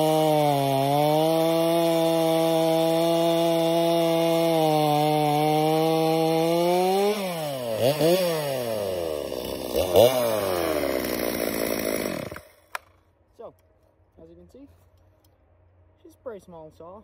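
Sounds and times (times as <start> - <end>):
chainsaw cutting log: 0.0 - 13.0.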